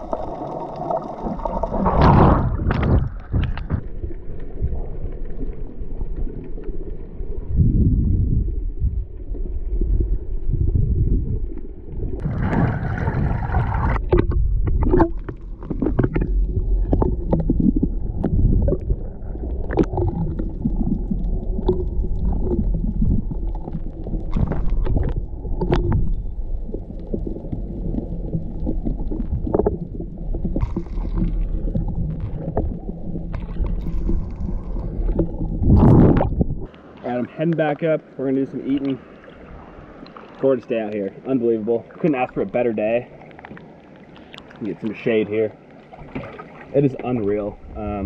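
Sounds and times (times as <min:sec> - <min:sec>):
bubbling: 0:00.0 - 0:37.4, 0:38.4 - 0:48.0
muffled underwater rumble: 0:00.0 - 0:48.0
sharp clicks and crackles: 0:13.9 - 0:36.8.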